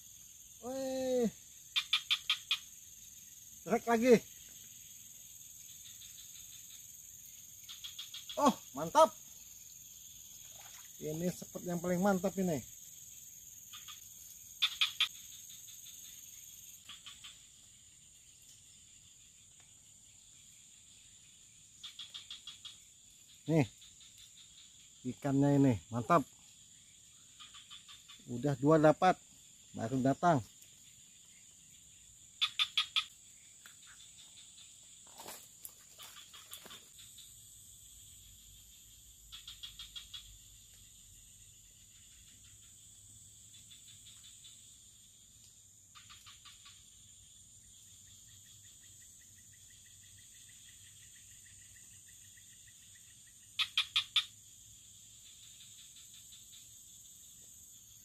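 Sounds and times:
insects droning: 0:00.0 - 0:58.0
short insect chirps: 0:00.0 - 0:58.0
frog clicking calls: 0:00.6 - 0:17.9, 0:21.7 - 0:31.3, 0:31.9 - 0:34.8, 0:35.9 - 0:37.4, 0:39.2 - 0:44.8, 0:45.5 - 0:47.1, 0:47.7 - 0:54.5.

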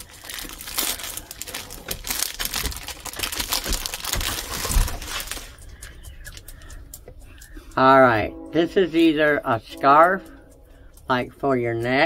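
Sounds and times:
package crinkling: 0:00.0 - 0:06.6.

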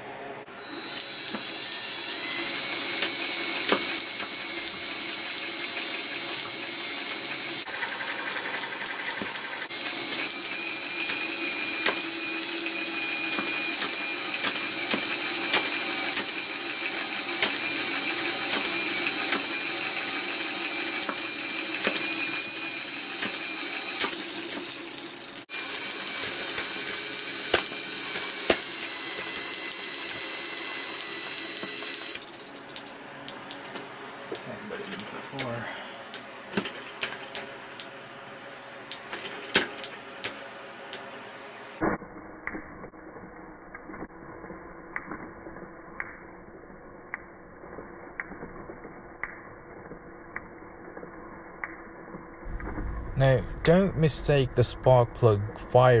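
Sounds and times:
electric motor whine: 0:00.6 - 0:32.5.

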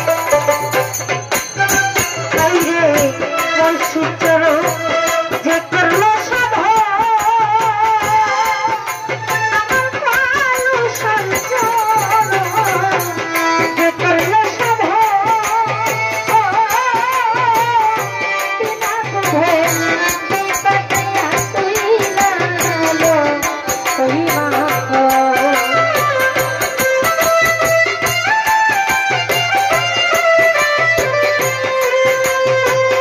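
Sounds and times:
hand drum beat: 0:00.0 - 0:33.0.

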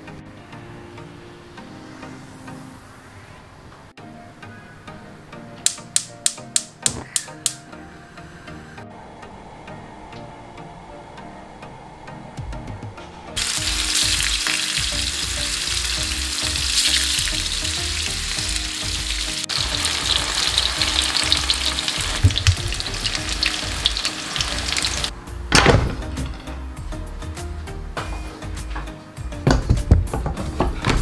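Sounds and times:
tofu sizzling in hot oil: 0:13.4 - 0:25.1.

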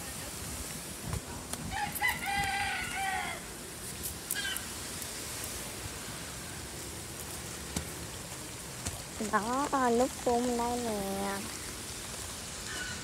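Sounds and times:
steady watery hiss: 0:00.0 - 0:13.0
rooster crowing: 0:01.7 - 0:03.6, 0:12.7 - 0:13.0.

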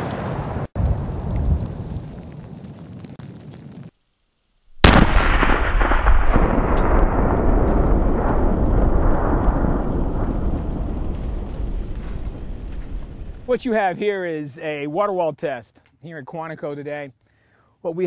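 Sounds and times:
explosion blast: 0:04.8 - 0:13.7.

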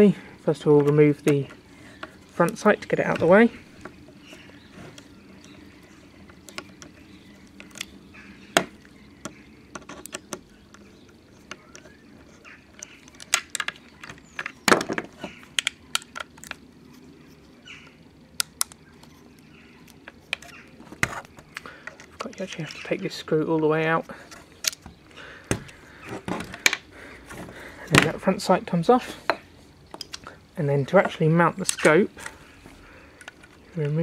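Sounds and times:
small metal clicks and taps: 0:29.3 - 0:30.3.

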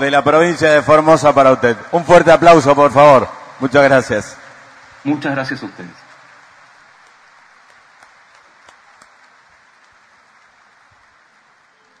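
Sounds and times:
audience applause: 0:03.7 - 0:12.0
separate hand claps: 0:06.1 - 0:12.0.

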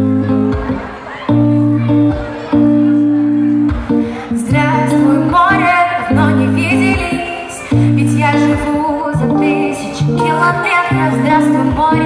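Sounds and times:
guitar: 0:00.0 - 0:12.0
woman singing without words: 0:04.4 - 0:12.0.

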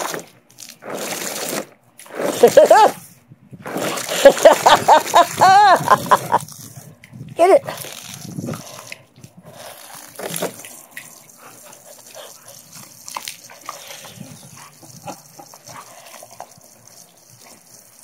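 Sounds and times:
water spraying from hose: 0:00.0 - 0:18.0
dog splashing in water: 0:03.6 - 0:06.8, 0:07.7 - 0:18.0
dog vocalization: 0:11.0 - 0:16.8.

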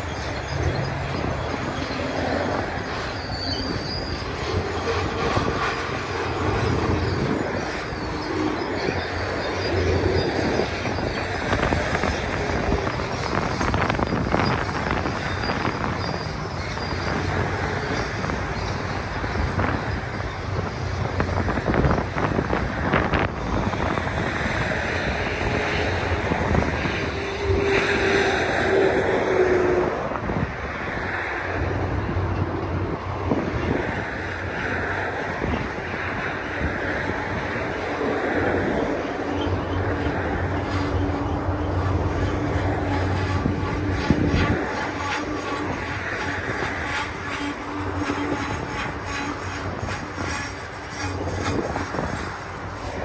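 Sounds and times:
train wheels rumbling on rail: 0:00.0 - 0:53.0
wheel flanges squealing: 0:00.0 - 0:53.0
wind buffeting the microphone: 0:00.0 - 0:53.0
train clanks: 0:32.1 - 0:53.0.

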